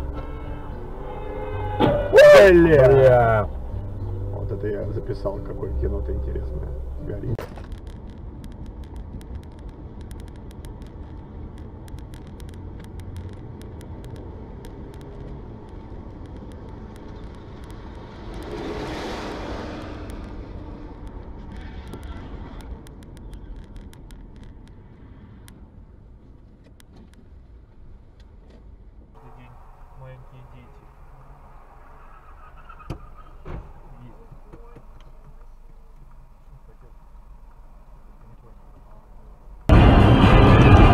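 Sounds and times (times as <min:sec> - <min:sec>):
engine and tyre noise in car: 0:00.0 - 0:40.9
rushing wind: 0:07.4 - 0:26.3, 0:39.5 - 0:40.9
faint clicks: 0:07.6 - 0:18.6, 0:19.8 - 0:25.6.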